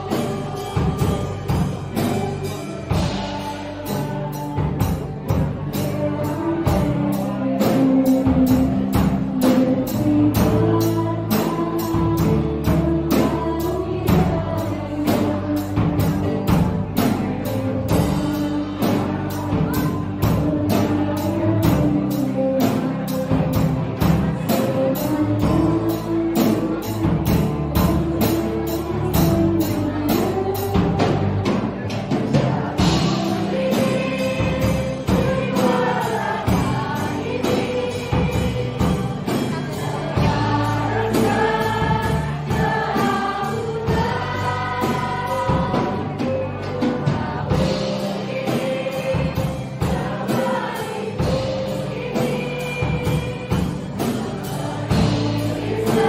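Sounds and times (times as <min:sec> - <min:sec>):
group singing: 0:00.0 - 0:56.0
music with steady beat: 0:00.0 - 0:56.0.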